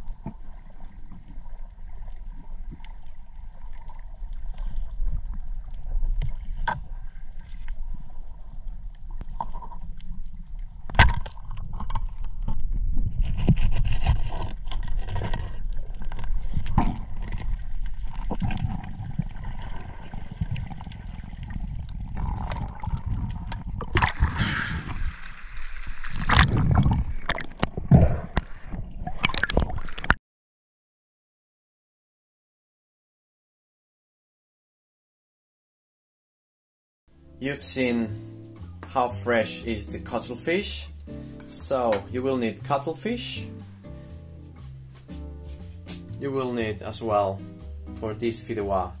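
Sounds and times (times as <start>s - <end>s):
underwater water gurgling: 0.0s - 30.2s.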